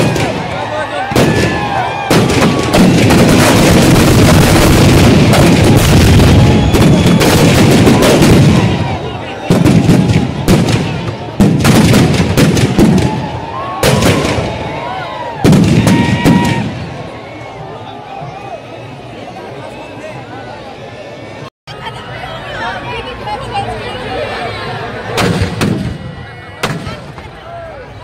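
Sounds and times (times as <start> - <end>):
firecrackers banging: 0.0 - 17.1, 25.1 - 27.4.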